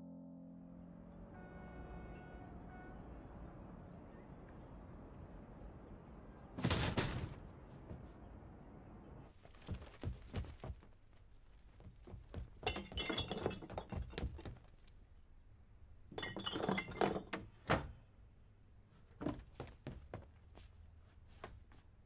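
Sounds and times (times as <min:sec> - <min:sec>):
knocks and thuds: 0:06.6 - 0:08.1
objects clattering in wooden box: 0:12.1 - 0:14.7, 0:16.2 - 0:17.5.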